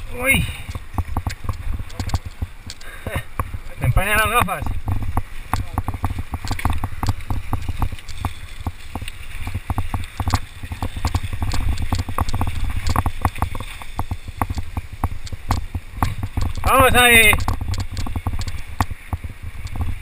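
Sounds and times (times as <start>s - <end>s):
wind rumble on microphone: 0.0s - 20.0s
mountain bike clattering over rock: 4.1s - 19.2s.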